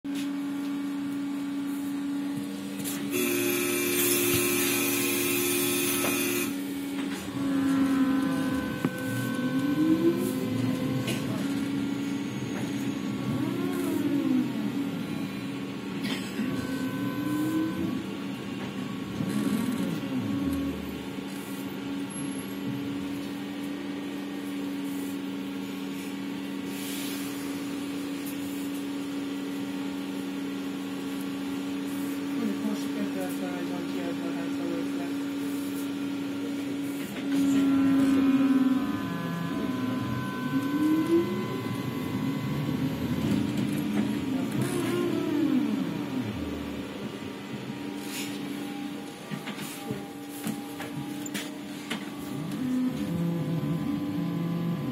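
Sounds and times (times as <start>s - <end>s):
electrical hum: 0.2s - 54.9s
hissing whine: 2.8s - 21.6s, 36.8s - 54.8s.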